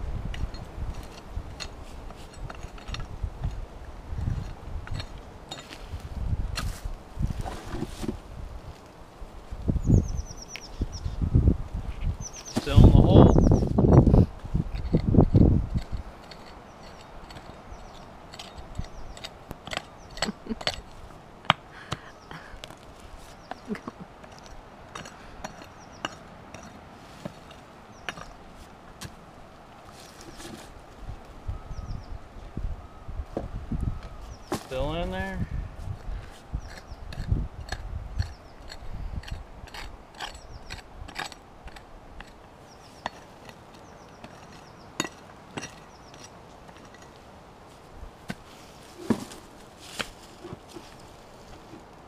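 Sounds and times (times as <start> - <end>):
pick striking stony dirt: 4.2 - 8.2, 12.3 - 13.1, 14.0 - 29.3, 34.4 - 35.0, 48.2 - 51.0.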